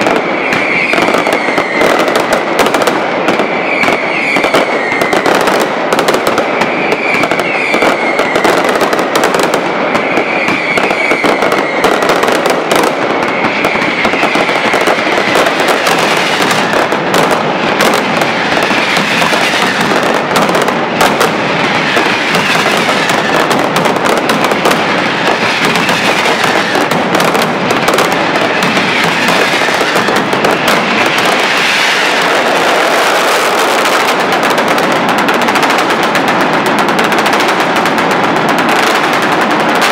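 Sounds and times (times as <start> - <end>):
firecracker barrage: 0.0 - 39.9
falling whistles: 0.3 - 2.1, 3.4 - 5.4, 6.5 - 8.8, 9.8 - 12.1, 13.2 - 15.4.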